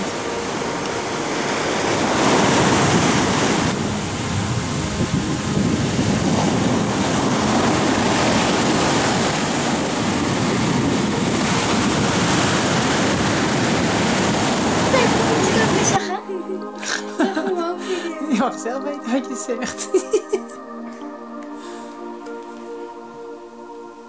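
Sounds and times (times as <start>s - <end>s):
ocean waves breaking: 0.0s - 19.7s.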